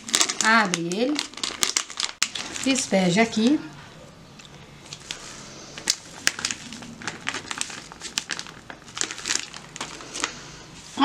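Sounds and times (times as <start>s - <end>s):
foil sachet crinkling: 0.0s - 3.6s, 4.8s - 11.0s.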